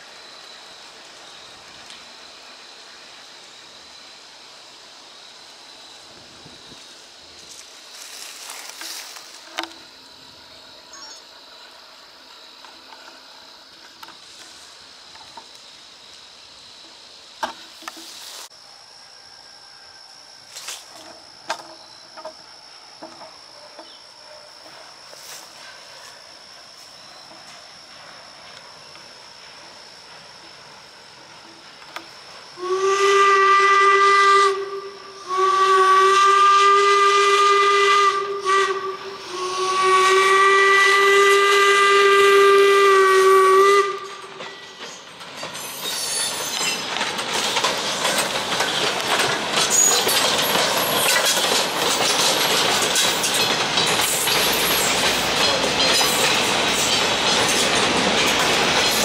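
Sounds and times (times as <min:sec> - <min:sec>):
faint high whine: 0:00.0 - 0:36.1
steam whistle blasts: 0:32.6 - 0:44.3.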